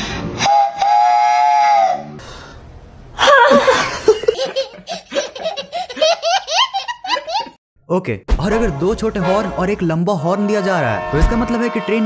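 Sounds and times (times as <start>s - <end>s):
child laughing: 3.2s - 7.6s.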